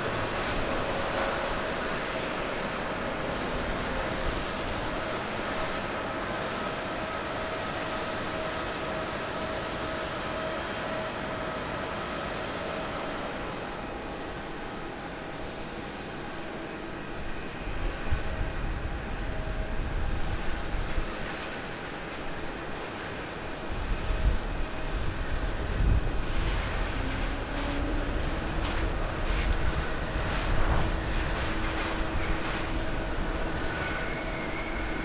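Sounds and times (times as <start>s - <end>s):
jet engines landing: 0.0s - 35.0s
runway rolling rumble: 17.8s - 35.0s.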